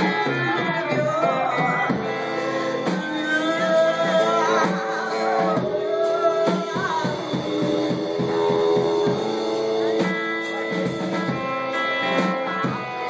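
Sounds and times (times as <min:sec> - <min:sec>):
woman singing: 0:00.0 - 0:09.3
live rock band playing: 0:00.0 - 0:13.0.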